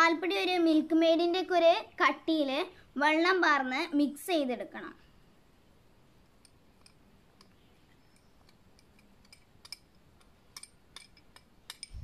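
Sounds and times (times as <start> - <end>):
spoon clicking against cup: 6.4 - 7.6, 8.2 - 12.0.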